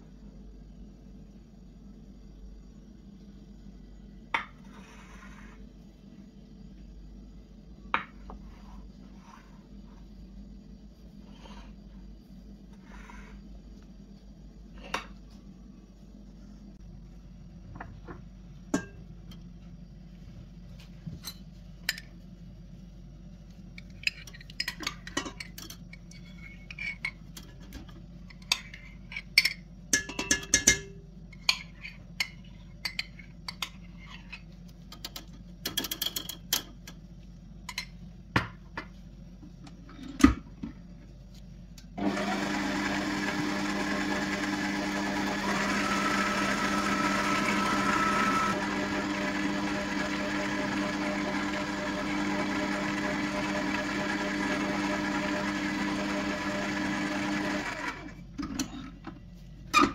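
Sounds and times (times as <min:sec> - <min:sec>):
kitchen appliance motor running: 0:42.0 - 0:58.2.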